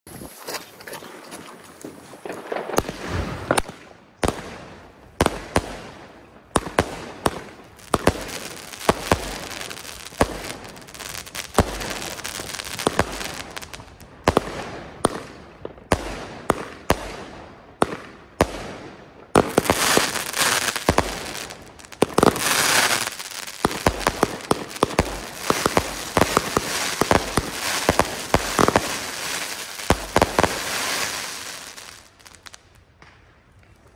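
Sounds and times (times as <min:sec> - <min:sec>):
fireworks bursting with sharp bangs: 0:01.8 - 0:33.9
firework hissing and crackling: 0:07.7 - 0:13.8, 0:19.4 - 0:32.6.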